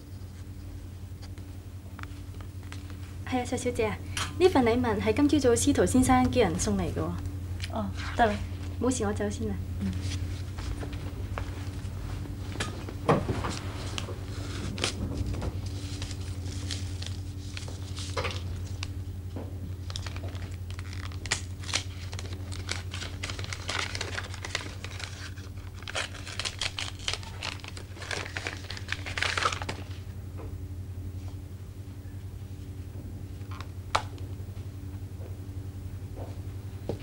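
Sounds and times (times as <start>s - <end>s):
steady low hum: 0.0s - 37.0s
wrapping paper crinkling and tearing: 13.5s - 19.0s, 19.7s - 30.0s.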